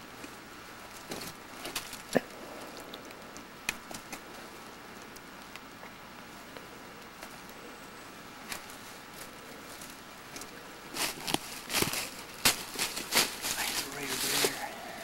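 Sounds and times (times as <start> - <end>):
footsteps crunching in dry leaves: 10.9 - 15.0.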